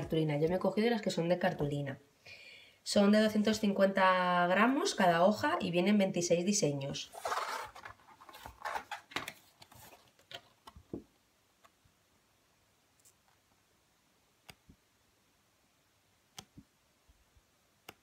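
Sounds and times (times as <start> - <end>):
card rustling: 7.1 - 11.0.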